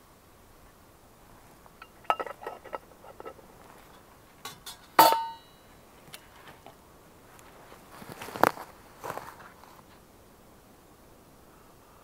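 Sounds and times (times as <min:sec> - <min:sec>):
metal cookware clinking: 0:01.8 - 0:03.4, 0:04.4 - 0:05.6.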